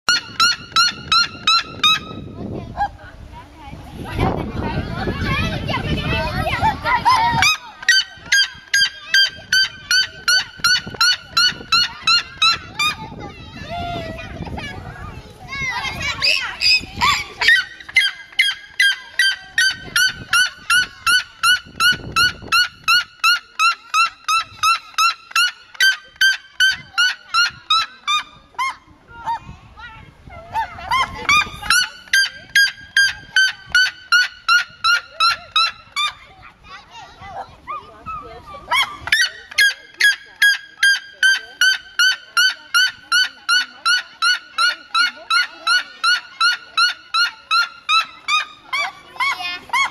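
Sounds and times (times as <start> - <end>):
bird yelping calls: 0.1 - 2.4, 7.1 - 13.1, 16.0 - 29.4, 30.3 - 36.3, 37.7 - 49.9.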